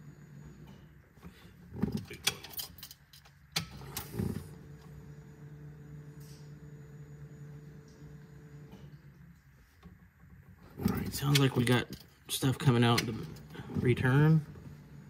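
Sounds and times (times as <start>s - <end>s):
fuel pump humming: 3.5s - 15.0s.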